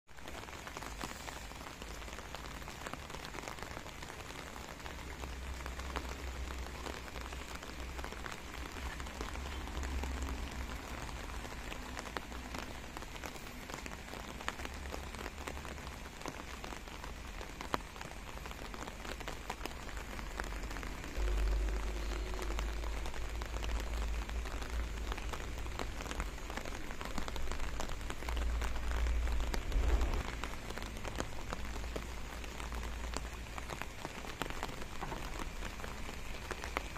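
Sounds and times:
rain pattering on pavement: 0.0 - 36.9
low rumble: 28.5 - 31.0.

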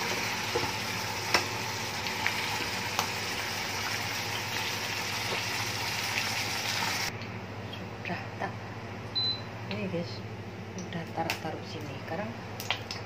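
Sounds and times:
tofu sizzling in hot oil: 0.0 - 7.1.

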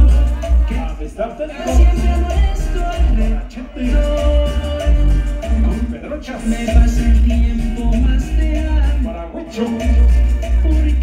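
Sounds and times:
latin dance music: 0.0 - 11.0.

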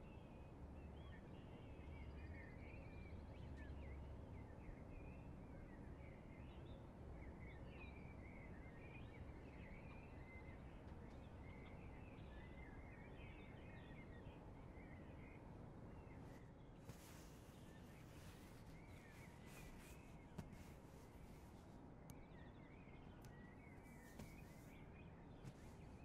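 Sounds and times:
small birds chirping: 0.1 - 26.0
soft hiss: 16.8 - 21.8, 23.2 - 24.8.

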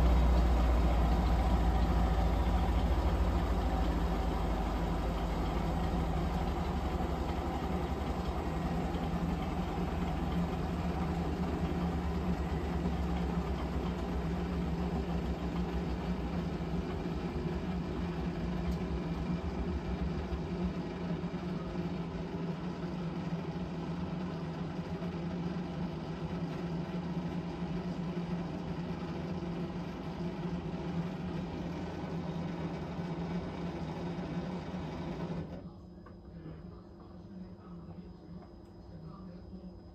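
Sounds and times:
washing machine motor hum: 0.0 - 36.0.

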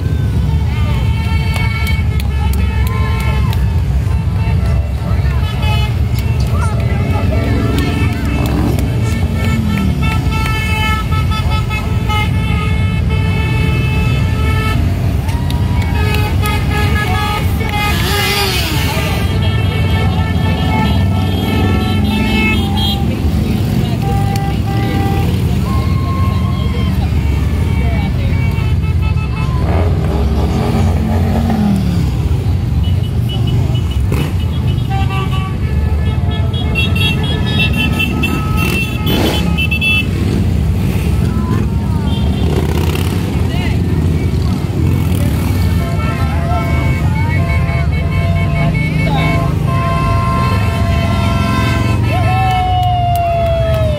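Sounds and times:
horn blasts: 0.0 - 52.8
motorcycle engines passing: 0.0 - 53.9
motorcycles rumbling past: 37.5 - 45.8.

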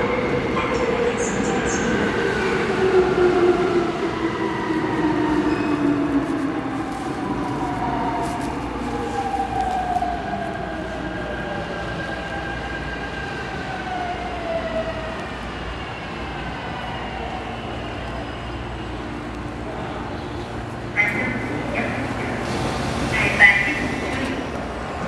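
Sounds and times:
electric train braking: 21.0 - 24.5.

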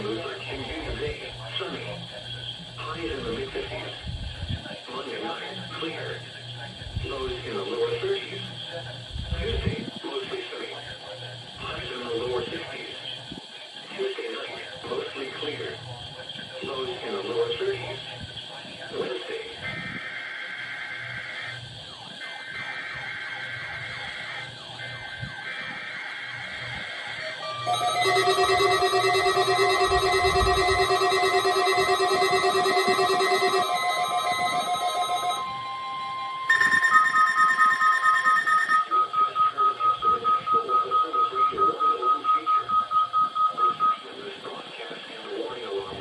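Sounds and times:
falling siren-like alarm: 19.8 - 43.4
buzzing digital data tones: 22.4 - 43.8
rapid high beeping: 27.5 - 44.0.

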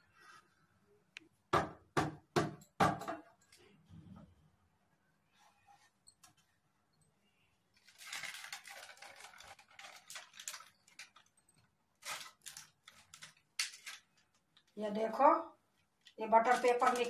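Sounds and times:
paper crinkling: 7.7 - 14.8, 15.7 - 17.0.

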